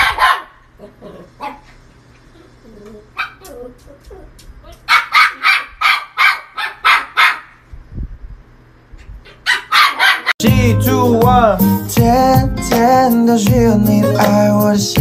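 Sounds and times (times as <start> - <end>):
puppy barking: 0.0 - 1.7, 3.1 - 7.6, 9.3 - 10.4.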